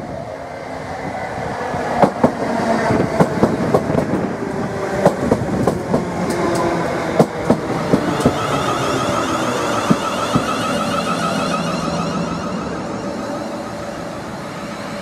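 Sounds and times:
electric train passing: 0.0s - 15.0s
train wheels clicking over rail joints: 5.0s - 8.6s, 9.7s - 10.9s.

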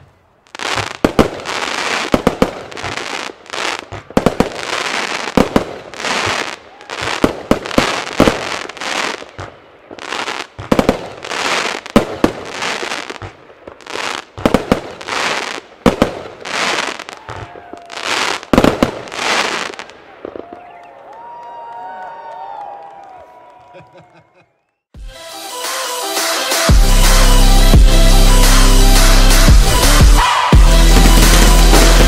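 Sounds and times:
firework bangs: 0.0s - 20.8s, 28.4s - 32.0s.

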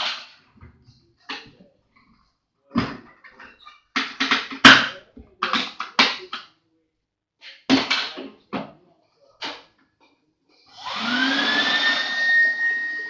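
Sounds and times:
vacuum cleaner motor whine: 10.7s - 13.0s.

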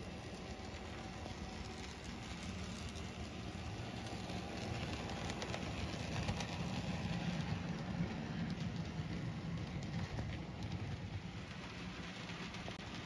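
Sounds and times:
faint clicks of wheels on rails: 0.0s - 13.0s
model train humming: 0.0s - 13.0s.

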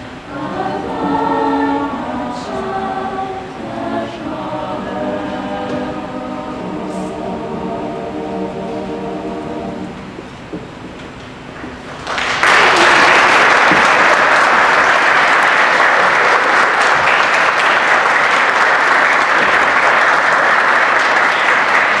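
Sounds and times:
audience applauding: 11.8s - 22.0s.

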